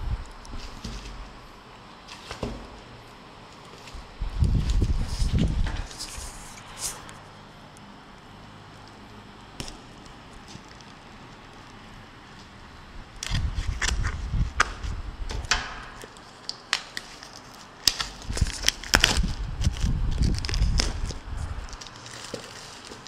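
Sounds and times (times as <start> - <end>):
packaging rustling and rubbing: 3.5 - 7.2, 16.0 - 23.0
sharp clicks and crackles: 6.8 - 12.5, 13.2 - 23.0.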